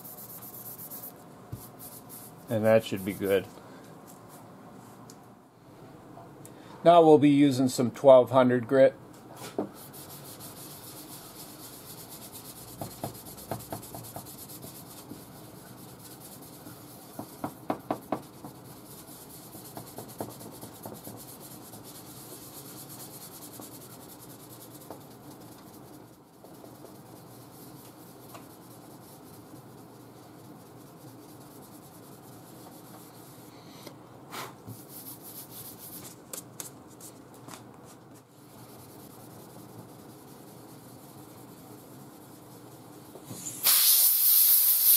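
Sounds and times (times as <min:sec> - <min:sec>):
sandpaper rubbing on paint: 0:00.0 - 0:03.5, 0:09.8 - 0:33.5, 0:34.8 - 0:36.2, 0:38.4 - 0:42.8.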